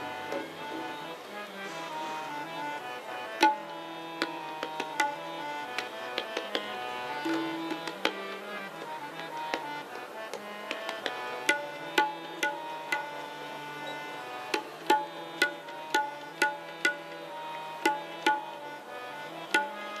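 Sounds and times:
harmonium holding notes: 0.0 - 20.0
tabla strokes: 3.4 - 13.1, 14.5 - 18.6, 19.5 - 19.8.

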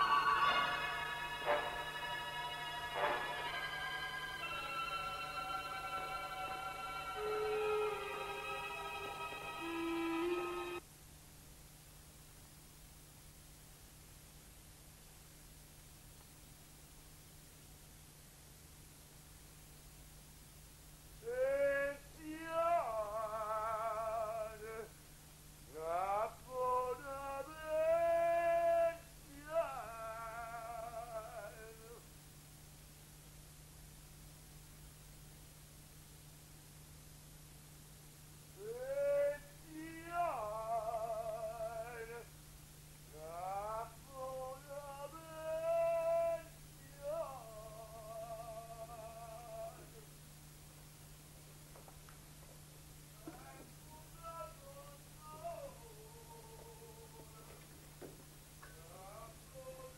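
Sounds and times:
melody with wavering vibrato: 0.0 - 10.8.

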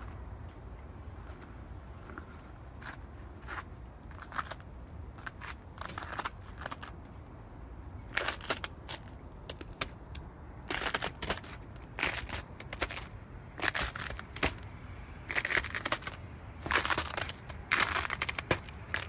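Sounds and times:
footsteps crunching in snow: 10.7 - 14.6, 15.3 - 19.0.

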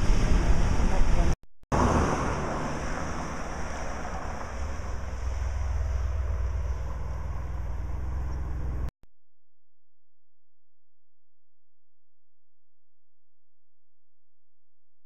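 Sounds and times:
steady rushing noise: 0.0 - 8.9.

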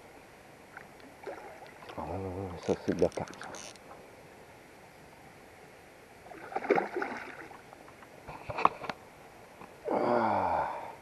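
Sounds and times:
fish thrashing in water: 6.3 - 7.6.

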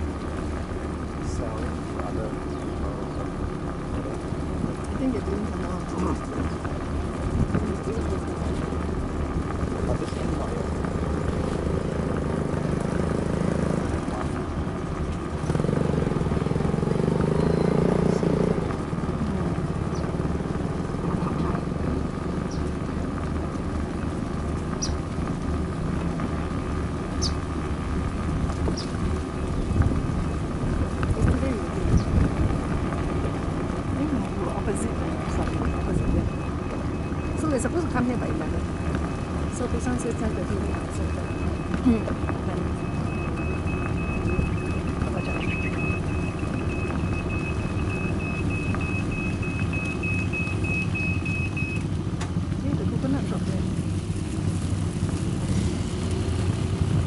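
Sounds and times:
motor scooter engine running: 0.0 - 57.0
small vehicle rumbling on pavement: 0.0 - 57.0
wind on microphone: 28.5 - 33.8
high electronic beeps: 35.5 - 37.6, 40.2 - 51.8.

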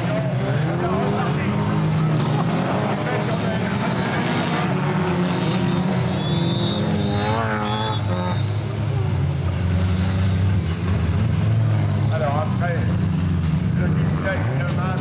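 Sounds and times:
race car engines droning: 0.0 - 15.0.

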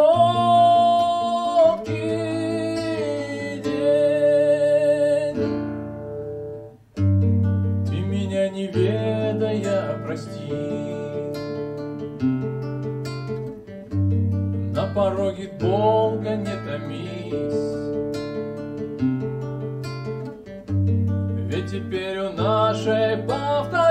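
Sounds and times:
man singing with vibrato: 0.0 - 5.9, 7.8 - 11.8, 14.7 - 18.0, 21.4 - 23.9
acoustic guitar strumming: 0.0 - 23.9.

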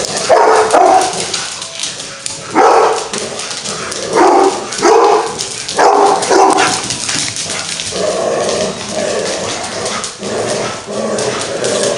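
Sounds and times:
dogs scrambling on rubber floor: 0.0 - 11.9
dog barking: 0.2 - 1.2, 2.5 - 3.1, 4.1 - 6.8.

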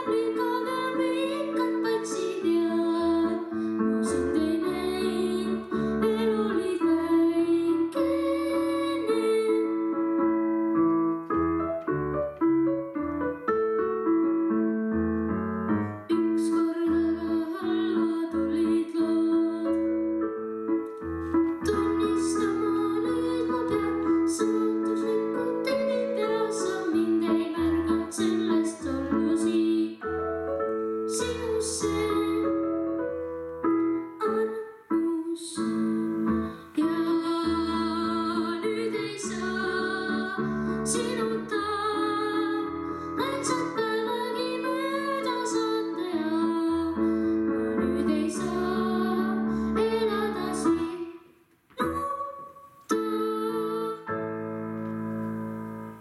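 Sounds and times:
boy singing into a microphone: 0.0 - 10.0, 16.1 - 19.9, 21.6 - 30.1, 31.1 - 32.7, 34.2 - 47.0, 47.7 - 51.2, 51.8 - 54.2
piano accompaniment: 0.0 - 56.0.

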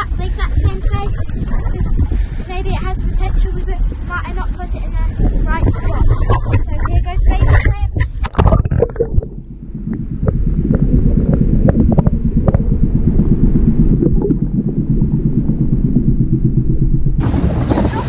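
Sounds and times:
muffled underwater rumble: 0.0 - 18.0
wind: 0.0 - 18.0
sharp underwater clicks: 6.1 - 12.7.

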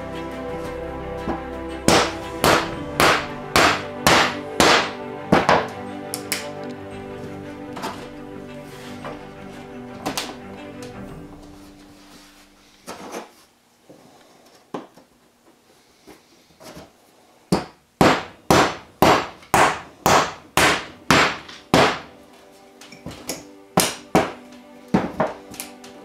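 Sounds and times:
mallet knocking on wood: 1.9 - 5.7.

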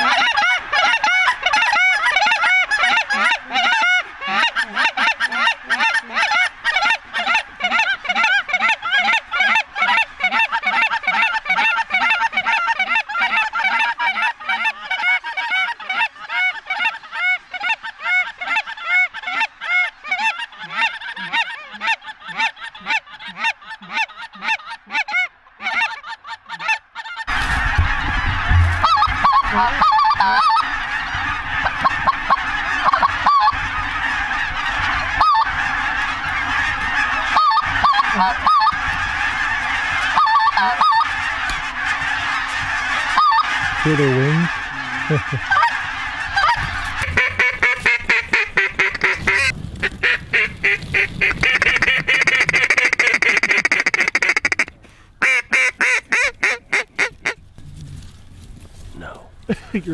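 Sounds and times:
geese honking: 0.0 - 58.6.

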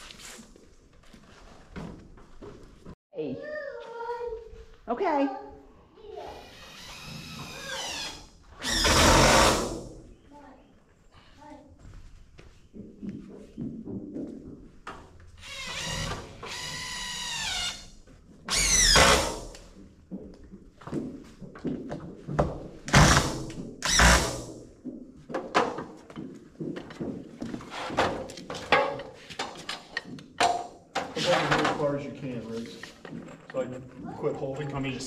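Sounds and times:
power drill driving screws: 6.4 - 9.9, 15.4 - 17.9, 18.5 - 19.5, 22.9 - 24.5
clatter of wood and tools: 24.8 - 33.9.

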